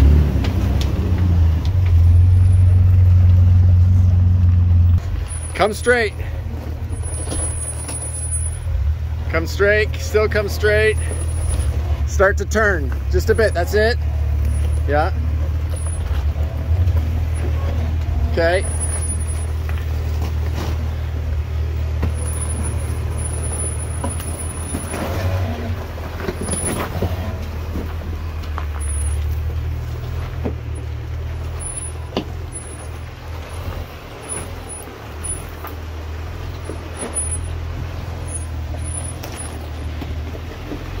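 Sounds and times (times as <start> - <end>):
engine running low and steady: 0.0 - 41.0
rock crunching under tyres: 14.3 - 41.0.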